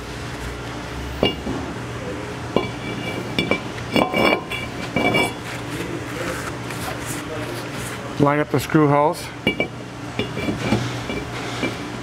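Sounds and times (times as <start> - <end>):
metal clinks and knocks: 2.6 - 5.4, 9.4 - 11.8.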